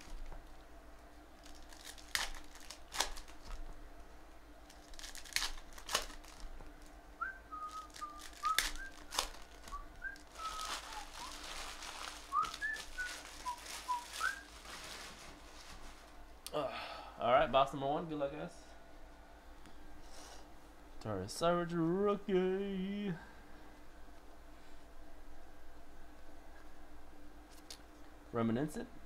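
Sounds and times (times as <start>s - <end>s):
foil wrappers crinkling and tearing: 1.4s - 3.7s, 4.6s - 6.9s, 7.6s - 16.2s
person whistling short notes: 9.7s - 11.4s, 12.3s - 14.5s.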